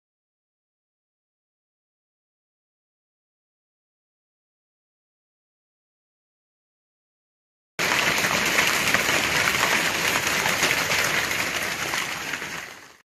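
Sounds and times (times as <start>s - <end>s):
hail and heavy rain pelting: 7.8s - 13.0s.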